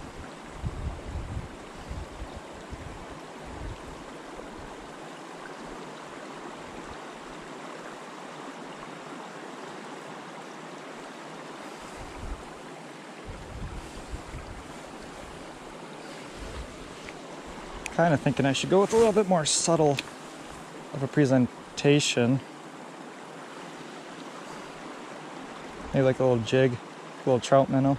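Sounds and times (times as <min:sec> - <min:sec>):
wind rumbling on microphone: 0:00.0 - 0:04.9, 0:11.6 - 0:12.6, 0:13.2 - 0:20.9
outdoor wind hiss: 0:00.0 - 0:27.9.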